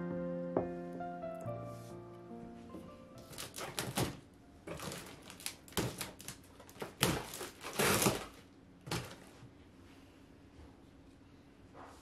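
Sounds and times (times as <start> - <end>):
packing paper rustling: 3.2 - 9.4
cardboard flaps handled: 3.3 - 9.4.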